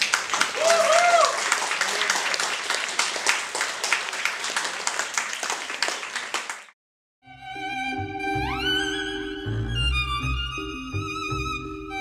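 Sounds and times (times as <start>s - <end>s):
audience cheering: 0.0s - 6.6s
audience applauding: 0.0s - 6.8s.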